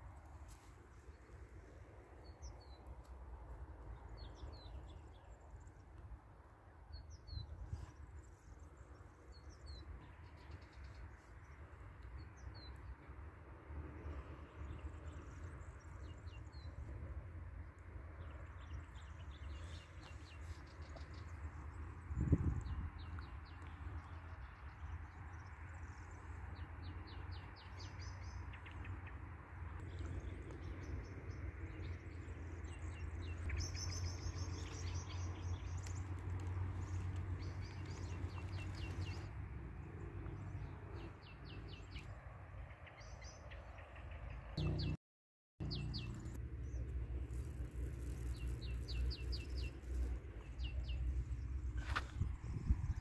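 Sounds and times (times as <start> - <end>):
small birds chirping and trilling: 29.8 - 39.3, 45.6 - 53.0.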